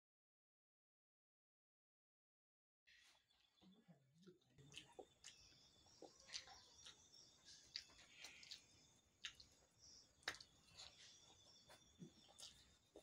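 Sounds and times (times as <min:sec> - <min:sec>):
wet mouth clicks and smacks: 0:04.7 - 0:09.6, 0:10.2 - 0:10.7.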